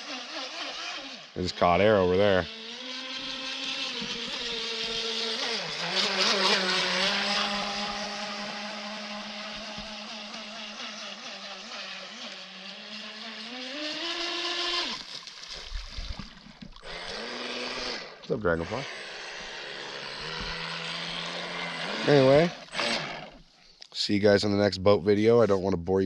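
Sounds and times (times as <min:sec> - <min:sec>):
model speedboat motor running: 0:00.0 - 0:23.6.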